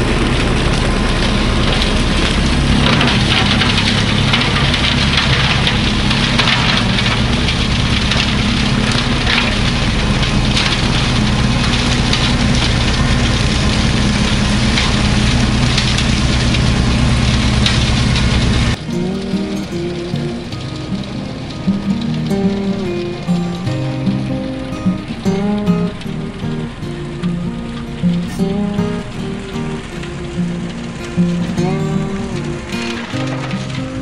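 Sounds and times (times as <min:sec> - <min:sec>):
tractor diesel engine running: 0:00.0 - 0:34.0
quiet music: 0:18.8 - 0:34.0.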